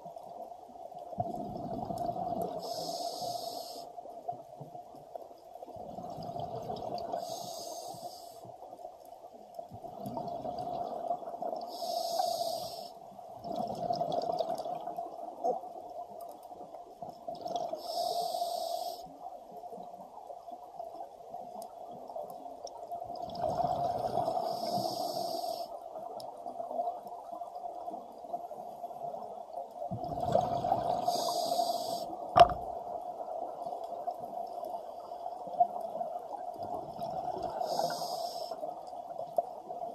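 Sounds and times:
regulator inhale hiss: 2.5s - 4.0s, 7.1s - 8.5s, 11.7s - 13.0s, 17.8s - 19.2s, 24.4s - 25.8s, 31.0s - 32.2s, 37.5s - 38.8s.

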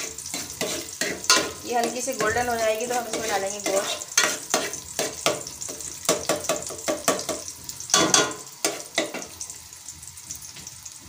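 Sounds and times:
onion sizzling in hot oil: 0.0s - 11.0s
ladle scraping metal pot: 0.3s - 4.8s.

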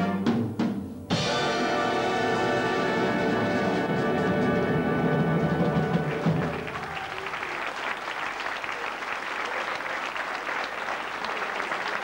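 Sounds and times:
audience applauding: 5.4s - 12.0s.

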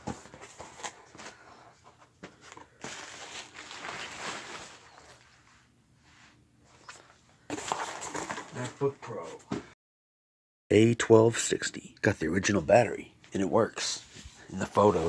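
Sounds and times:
bubble wrap rustling: 2.4s - 5.3s.

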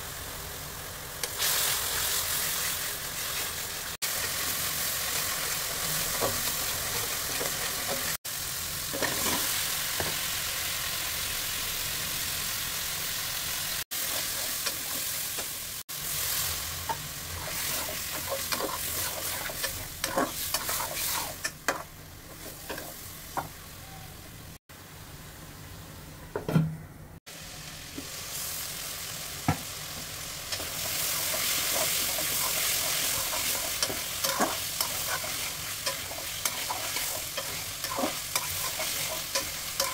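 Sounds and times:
food sizzling in hot oil: 0.0s - 23.7s, 27.3s - 39.9s
spatula scraping a wok: 14.0s - 15.4s, 17.3s - 23.1s, 30.5s - 39.9s.

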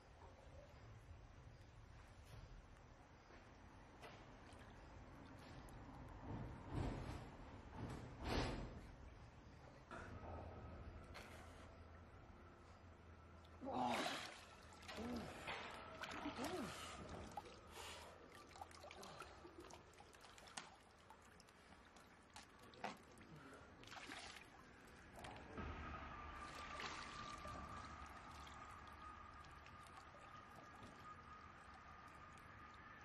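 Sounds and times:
water sloshing and dripping: 3.8s - 7.9s, 10.9s - 33.0s
small splashes: 13.4s - 32.9s.

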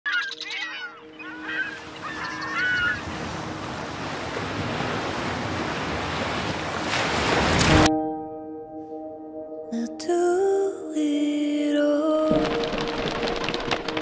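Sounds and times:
bird calls: 0.1s - 3.9s
ocean surf on sandy beach: 1.7s - 7.9s.

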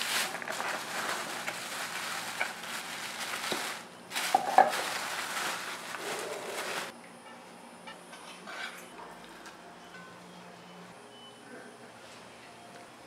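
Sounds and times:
plastic bags crinkling: 0.0s - 6.9s.

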